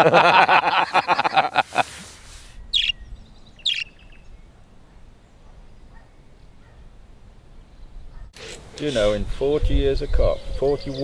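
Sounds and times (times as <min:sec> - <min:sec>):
man laughing: 0:00.0 - 0:02.1
budgerigar chirping: 0:02.7 - 0:04.4.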